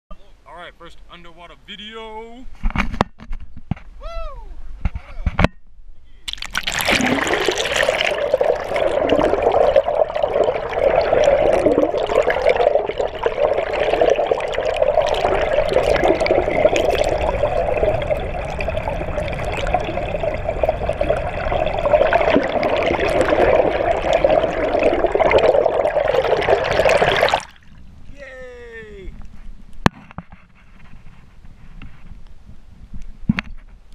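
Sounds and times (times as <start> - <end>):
underwater water rushing: 6.3 - 27.8.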